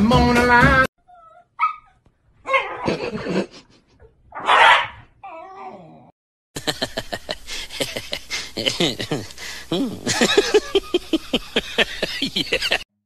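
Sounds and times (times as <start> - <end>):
dogs yipping and grumbling: 1.0 - 3.3, 4.0 - 6.1
dog harsh cry: 1.1 - 3.0, 4.4 - 5.9.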